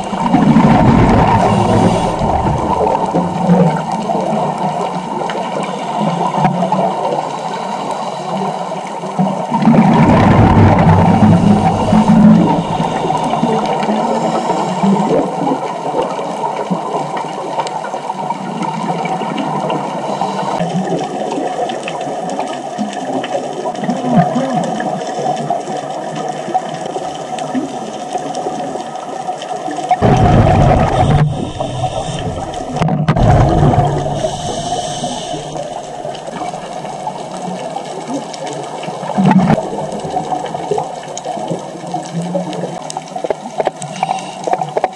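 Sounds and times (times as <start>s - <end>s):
underwater regulator breathing: 0.0s - 3.0s, 9.8s - 15.3s, 20.0s - 20.6s, 30.0s - 36.7s, 43.8s - 44.9s
rushing bubbles underwater: 0.0s - 44.9s.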